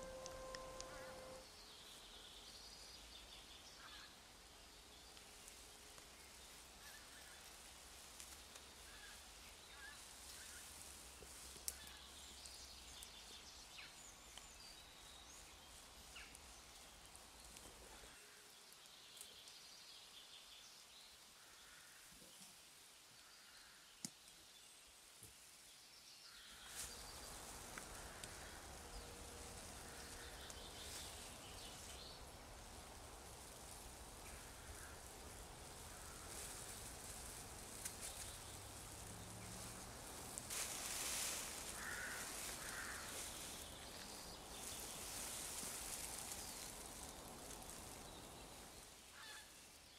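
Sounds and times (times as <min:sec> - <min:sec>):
faint bird calls: 0:00.0 - 0:01.4, 0:41.6 - 0:44.8, 0:49.1 - 0:49.6
low steady outdoor hiss: 0:00.0 - 0:49.9.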